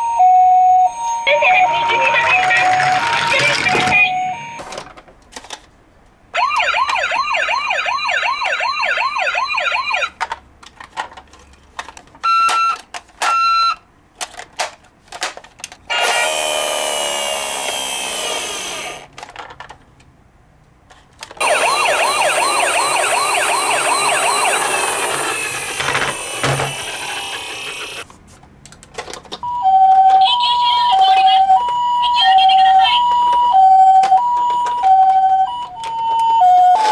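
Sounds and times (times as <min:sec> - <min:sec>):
toy electronic siren: 0:00.0 - 0:04.6, 0:06.4 - 0:10.1, 0:12.2 - 0:13.8, 0:15.9 - 0:19.0, 0:21.4 - 0:28.0, 0:29.5 - 0:36.9.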